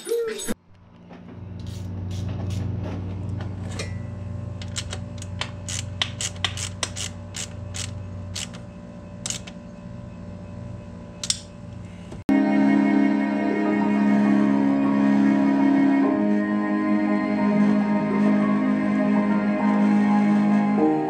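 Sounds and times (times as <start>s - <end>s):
steady low hum: 0.7s - 12.2s.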